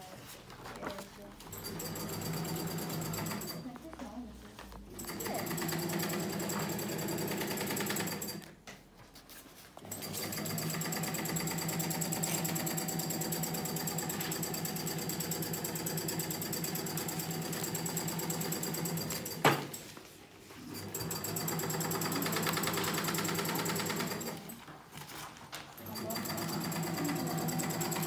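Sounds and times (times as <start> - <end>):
sewing machine stitching: 1.5 - 3.7, 4.9 - 8.5, 9.8 - 19.8, 20.6 - 24.6, 25.8 - 28.0.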